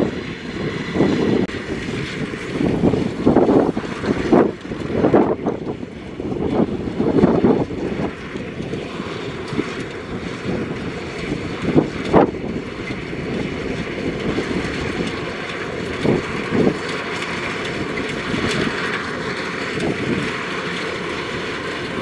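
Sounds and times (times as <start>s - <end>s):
combine harvester clattering: 0.0s - 22.0s.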